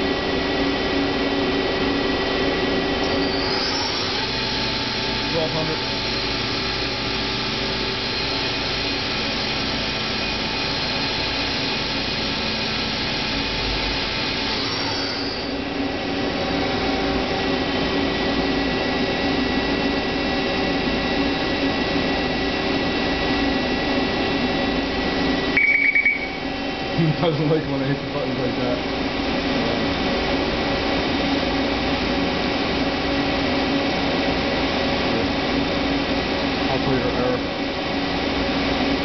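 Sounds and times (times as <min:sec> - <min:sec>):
lathe humming and whining: 0:00.0 - 0:39.0
short beep: 0:25.6 - 0:26.4.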